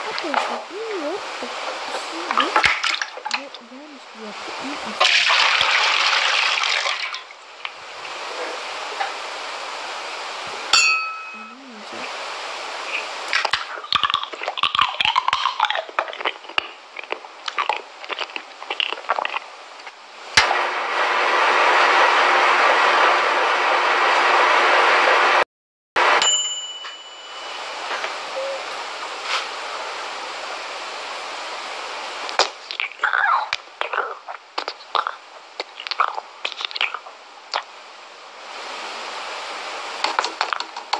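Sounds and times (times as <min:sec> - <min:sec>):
powder pouring hiss: 0:00.2 - 0:07.3
ringing metallic ding: 0:10.8 - 0:11.6, 0:26.2 - 0:27.8.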